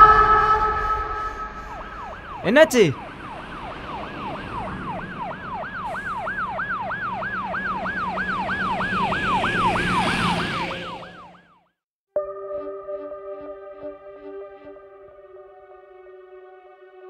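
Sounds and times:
ambulance siren yelping: 1.6 - 11.5.

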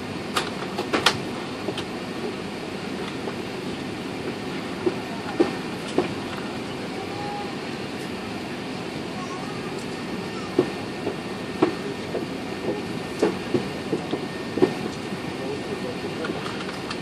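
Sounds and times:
aircraft cabin rumble: 0.0 - 17.0.

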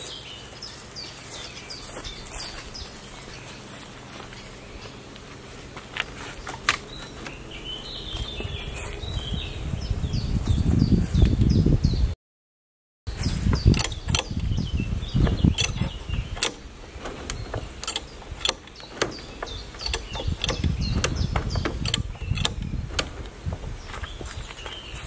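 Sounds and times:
birds chirping: 0.0 - 12.1, 13.1 - 25.0
metallic tool clicks and knocks: 13.6 - 14.4, 15.3 - 16.6, 17.2 - 23.4.

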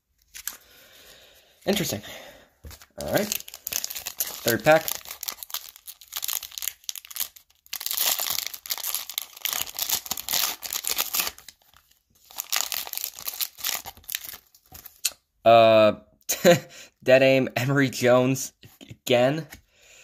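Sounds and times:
foil pack tearing and crinkling: 2.7 - 15.0.

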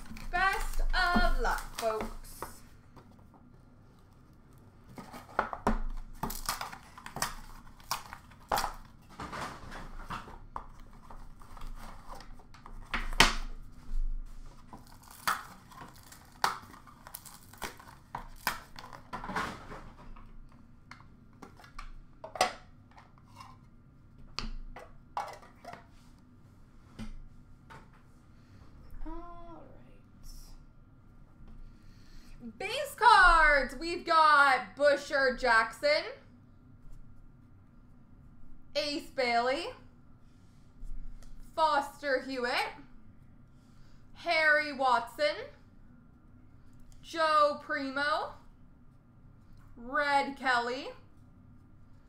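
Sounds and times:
wrappers crinkling and tearing: 14.6 - 19.1.

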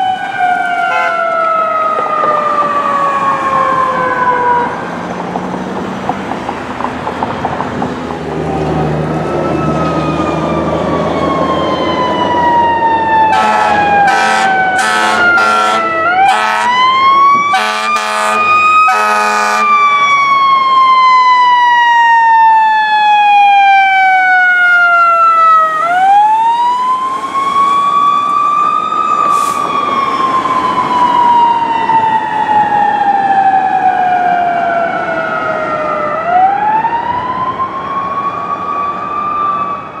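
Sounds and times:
fire engine siren wailing: 0.0 - 40.0
short air horn blasts: 0.9 - 1.2, 13.3 - 16.7, 17.6 - 19.7.

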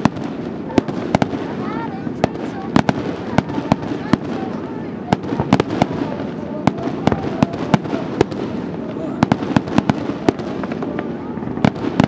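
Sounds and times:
fireworks bangs: 0.0 - 12.0
background voices: 0.5 - 11.7.

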